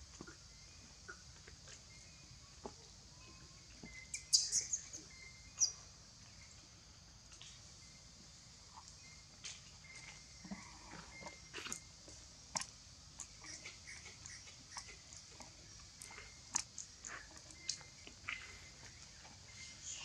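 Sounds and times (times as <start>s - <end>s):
steady high hiss: 17.6s - 20.0s.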